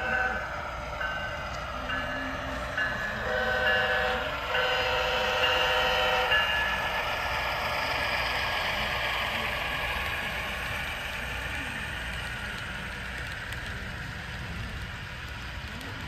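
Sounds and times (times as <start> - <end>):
model train running: 0.0 - 16.0
model locomotive horn: 3.2 - 6.4.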